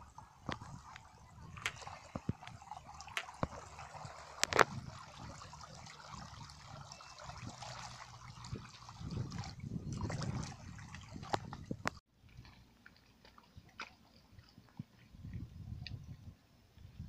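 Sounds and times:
water trickling and dripping: 0.0s - 16.3s
hands slapping wet mud: 1.6s - 4.7s.

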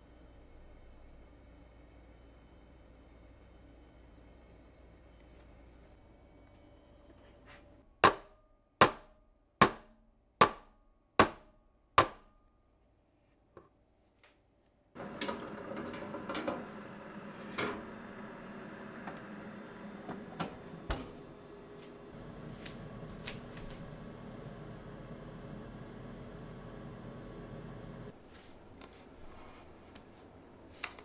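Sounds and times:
steady hum: 15.0s - 28.2s.

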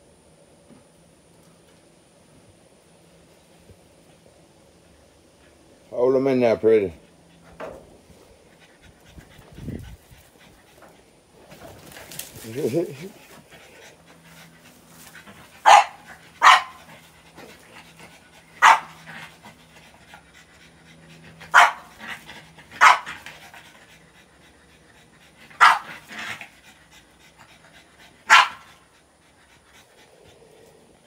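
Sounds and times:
puppy barking: 15.6s - 16.8s, 18.6s - 19.0s, 21.5s - 21.9s, 22.8s - 23.2s, 25.6s - 25.9s, 28.3s - 28.7s.

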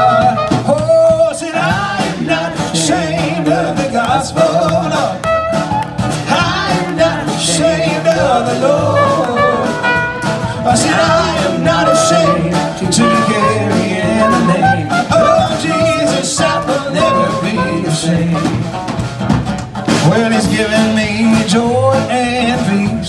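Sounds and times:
gospel band playing: 0.0s - 23.0s
person singing: 6.3s - 18.6s.

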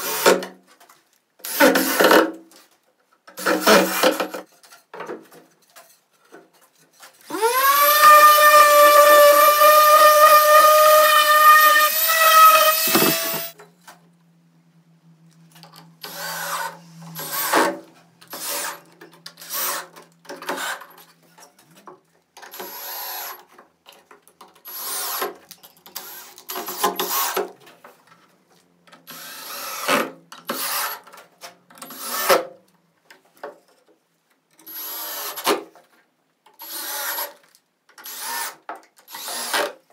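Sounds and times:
power tool whining: 7.3s - 13.6s.

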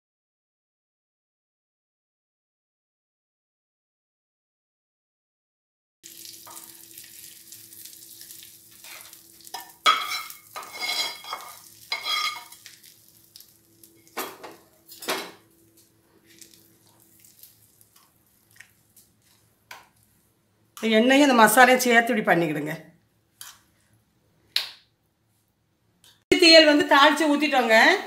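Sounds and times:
hot oil sizzling: 6.0s - 15.1s, 15.7s - 20.2s
metal spatula scraping a pan: 8.8s - 12.6s.

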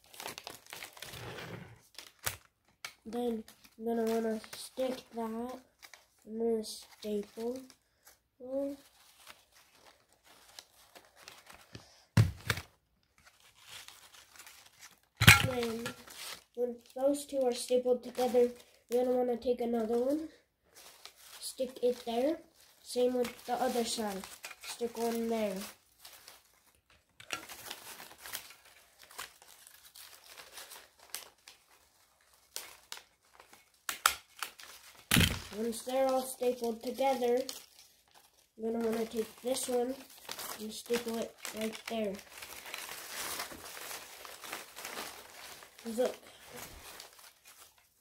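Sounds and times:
paper strips rustling: 0.0s - 48.0s.

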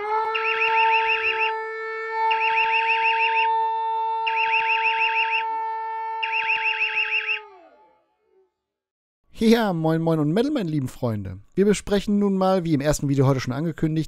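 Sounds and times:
steady droning alarm tone: 0.2s - 3.6s, 4.2s - 7.8s
rapid warbling chirps: 4.3s - 5.4s, 6.2s - 7.4s.

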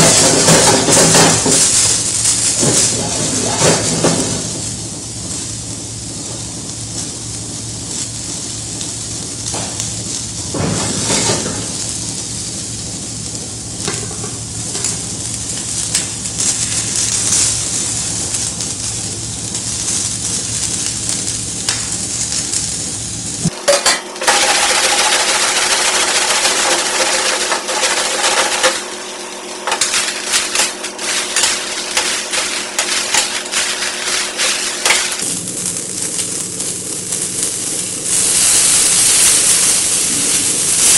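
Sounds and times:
metal utensils clinking and scraping: 0.0s - 4.2s, 23.6s - 28.9s, 29.6s - 35.2s
vegetables sizzling in a wok: 0.0s - 40.9s.

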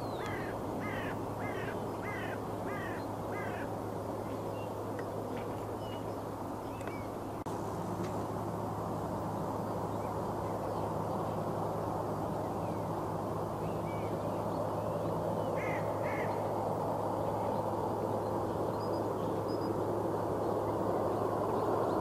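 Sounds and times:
bird calling: 0.0s - 3.8s, 15.4s - 16.4s
distant airfield rumble: 0.0s - 22.0s.

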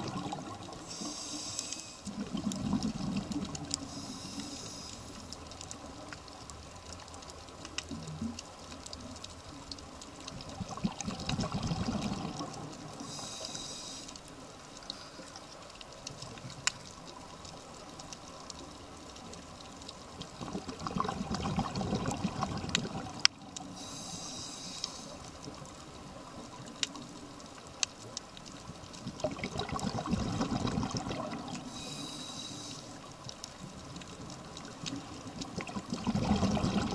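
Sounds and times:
bubbly exhalation underwater: 0.0s - 0.7s, 2.1s - 3.7s, 10.6s - 12.7s, 20.4s - 23.2s, 29.2s - 31.6s, 35.4s - 36.9s
faint clicks: 0.1s - 29.4s, 30.0s - 36.0s
hissing inhalation through regulator: 0.2s - 2.4s, 3.8s - 5.3s, 13.0s - 14.3s, 23.6s - 25.3s, 31.6s - 33.1s.

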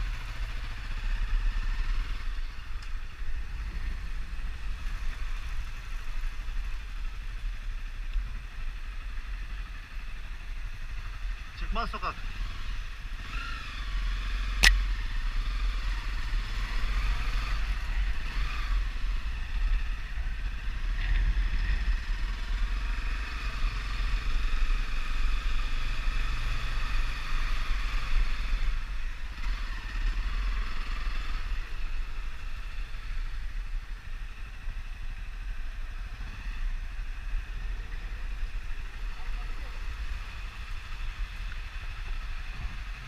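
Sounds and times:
air and road noise: 0.0s - 43.0s
sharp click: 14.6s - 14.9s.

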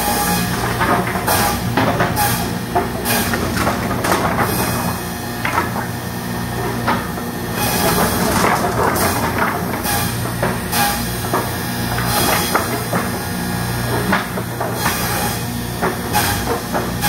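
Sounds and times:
machine hum: 0.0s - 17.0s
wooden boards clacking: 0.4s - 17.0s.

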